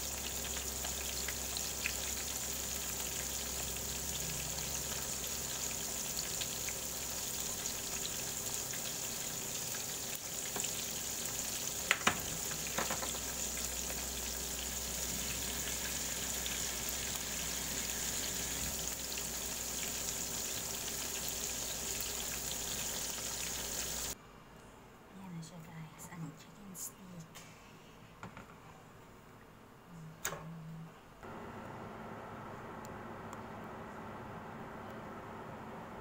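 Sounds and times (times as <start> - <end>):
chicken frying in hot oil: 0.0 - 24.2.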